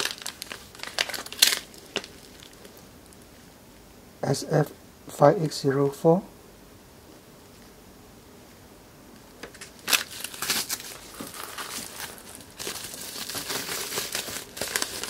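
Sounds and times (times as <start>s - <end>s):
plastic packaging crinkling: 0.0s - 3.3s, 9.4s - 15.0s.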